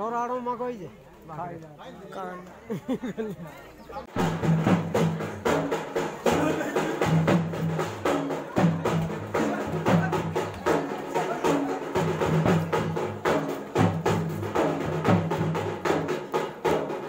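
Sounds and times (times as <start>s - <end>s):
music with steady drum beat: 4.0s - 17.0s.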